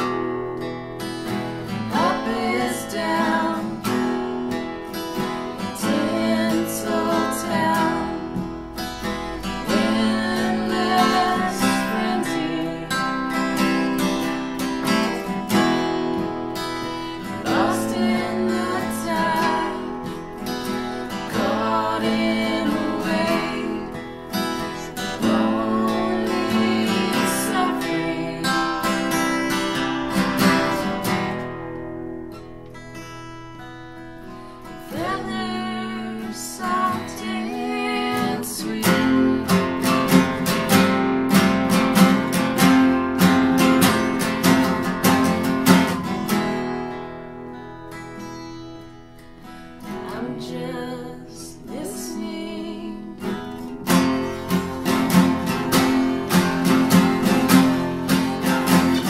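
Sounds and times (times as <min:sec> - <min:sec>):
acoustic guitars strummed: 0:00.0 - 0:59.0
person singing: 0:01.6 - 0:04.1, 0:05.5 - 0:14.2, 0:16.9 - 0:31.2, 0:34.8 - 0:40.8, 0:50.0 - 0:59.0.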